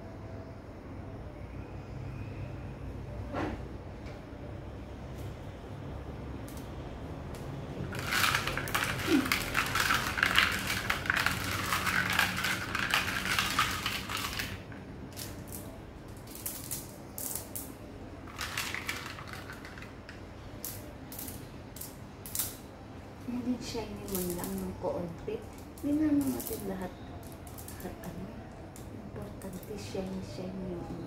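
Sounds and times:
glass marbles clinking in water: 8.0 - 14.6.

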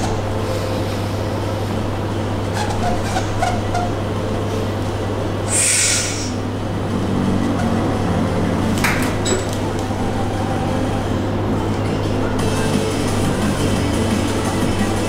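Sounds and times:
steady low hum: 0.0 - 15.0
sharp hissing breath: 5.5 - 6.4.

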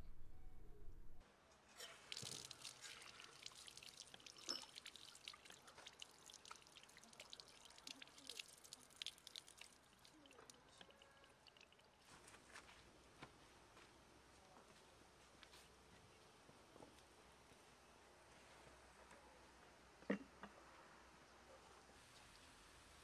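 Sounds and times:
water splashing from outdoor tap: 1.8 - 12.2
water drops pattering: 2.1 - 12.1.

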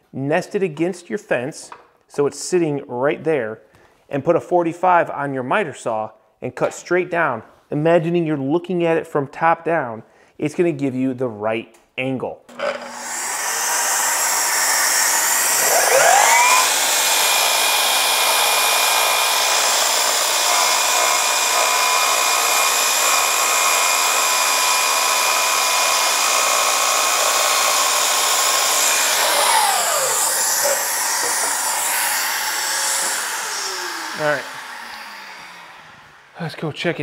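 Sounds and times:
miter saw motor running: 12.5 - 36.4
saw blade cutting wood: 12.5 - 36.6
dust extractor hiss: 13.1 - 37.0.

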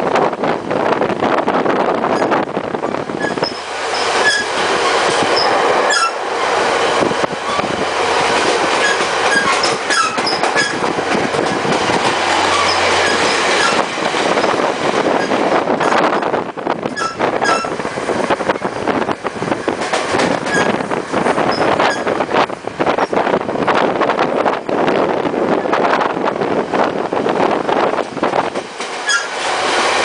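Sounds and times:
train wheels clattering on rails: 0.0 - 30.0
train wheel squeals: 2.1 - 2.4, 3.2 - 6.2, 7.4 - 7.7, 8.8 - 11.7, 12.4 - 16.3, 16.9 - 17.8, 20.4 - 20.8, 21.5 - 22.2, 29.0 - 29.4.

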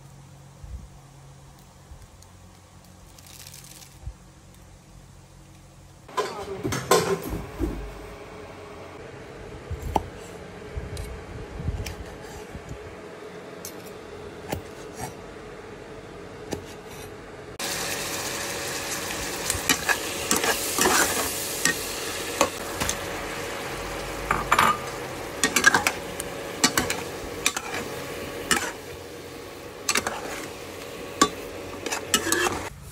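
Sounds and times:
food sizzling in a wok: 17.6 - 32.9
metal spatula scraping a pan: 19.7 - 21.8, 26.6 - 27.9, 29.9 - 30.6, 31.2 - 32.7.

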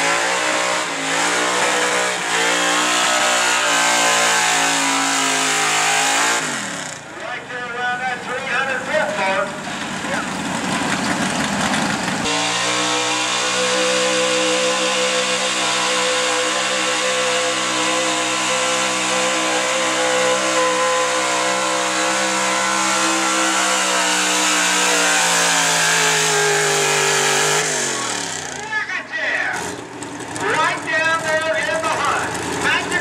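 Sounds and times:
pickup engine at high revs: 0.0 - 7.2, 9.8 - 28.7.

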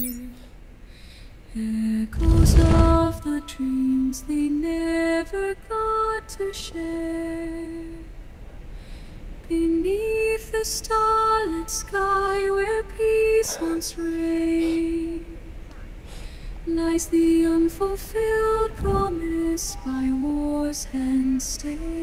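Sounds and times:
woman singing lullaby: 1.6 - 8.0, 9.5 - 15.4, 16.7 - 22.0.

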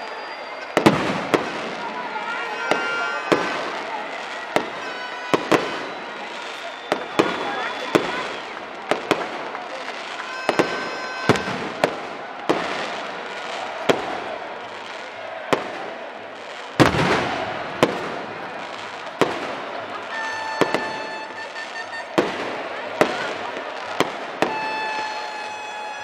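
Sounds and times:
horns or whistles: 0.0 - 8.7, 9.7 - 11.8, 17.1 - 26.0
fireworks banging: 0.0 - 26.0
stadium crowd din: 0.0 - 26.0.

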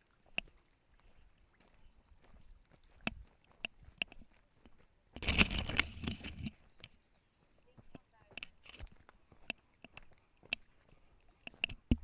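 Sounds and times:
stones clicking underfoot: 2.9 - 7.0, 7.8 - 12.0.

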